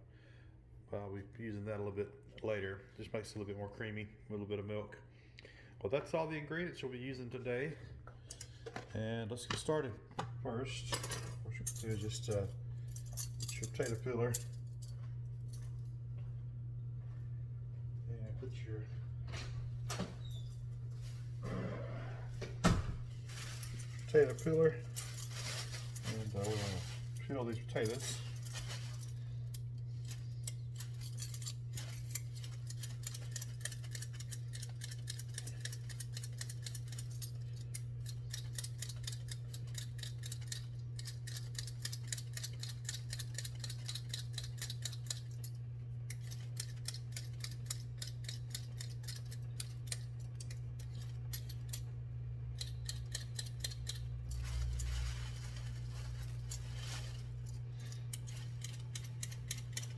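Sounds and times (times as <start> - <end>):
low hum: 10.0 - 42.3, 43.7 - 59.9
potato peeler scraping potatoes: 24.0 - 51.9, 52.5 - 59.9.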